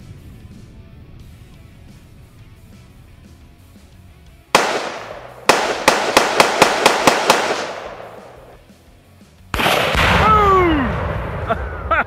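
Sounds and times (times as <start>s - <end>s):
gunshots echoing: 4.5s - 8.6s, 9.5s - 11.5s.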